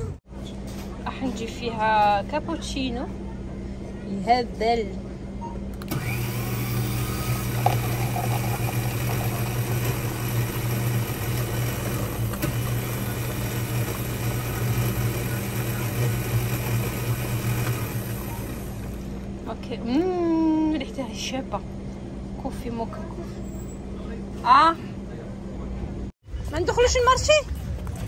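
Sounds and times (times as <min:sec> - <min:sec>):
coffee machine motor humming: 0:05.8 - 0:19.9.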